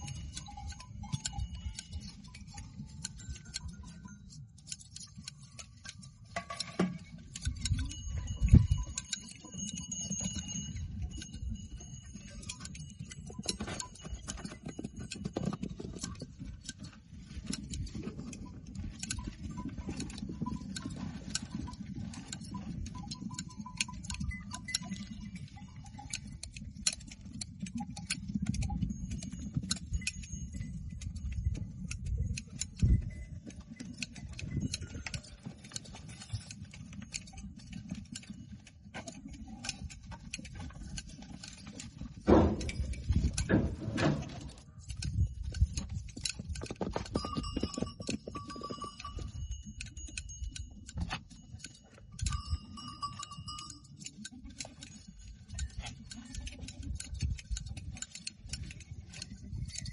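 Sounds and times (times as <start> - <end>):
wind rumble on microphone: 7.3 - 9.1, 16.6 - 35.5, 42.0 - 51.2, 56.4 - 59.9.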